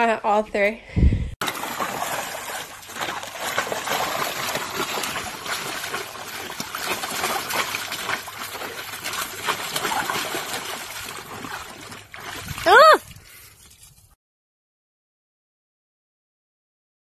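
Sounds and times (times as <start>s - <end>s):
dog splashing in water: 1.4s - 13.8s.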